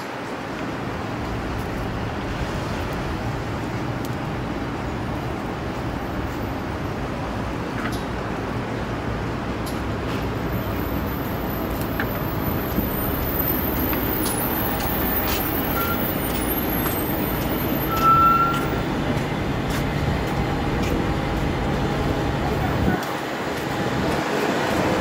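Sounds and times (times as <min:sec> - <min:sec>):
street traffic noise: 0:00.0 - 0:25.0
brakes squealing: 0:10.0 - 0:25.0.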